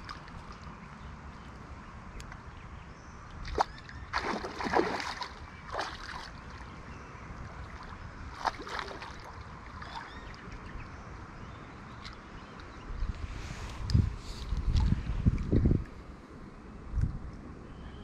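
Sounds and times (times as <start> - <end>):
fish splashing in shallow water: 3.3 - 6.8, 7.5 - 10.9.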